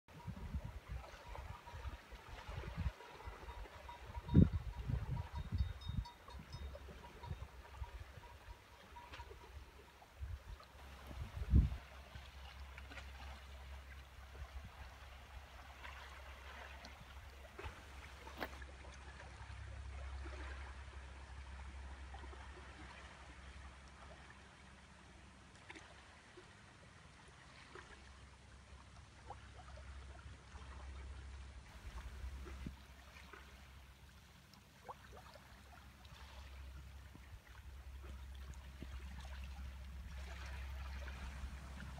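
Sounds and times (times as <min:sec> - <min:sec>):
wind rumble on microphone: 0:00.1 - 0:18.6, 0:31.7 - 0:33.0, 0:36.6 - 0:41.9
small waves lapping on rocks: 0:00.2 - 0:41.9
small water splashes: 0:05.3 - 0:41.9.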